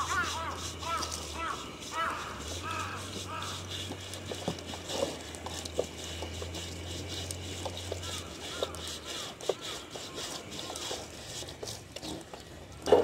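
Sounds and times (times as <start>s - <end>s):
bird calling: 0.0s - 4.4s, 7.8s - 11.2s.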